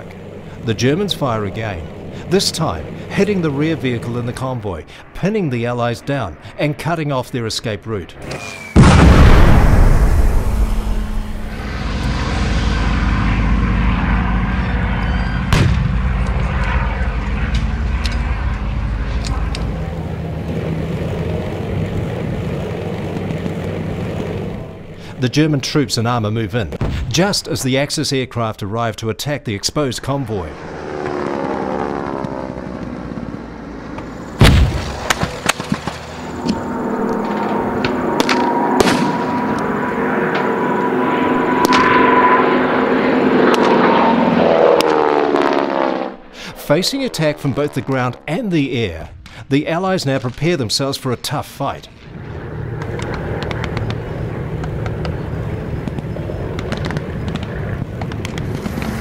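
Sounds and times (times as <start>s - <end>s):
military vehicle engines running: 0.0s - 8.9s, 10.6s - 45.6s, 46.2s - 59.0s
sharp bang: 8.6s - 13.7s, 15.2s - 16.8s, 34.4s - 43.8s
loud blast: 8.7s - 20.2s, 34.2s - 44.1s
explosion rumble: 8.7s - 24.6s, 33.2s - 42.7s.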